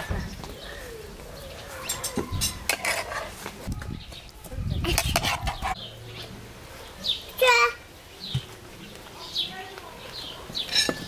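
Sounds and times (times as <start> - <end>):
metal spoon scraping a frying pan: 1.9 - 3.4, 4.9 - 5.8.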